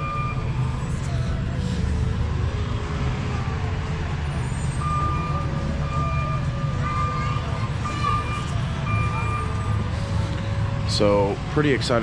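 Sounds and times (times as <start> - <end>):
faint high tone: 4.8 - 9.8.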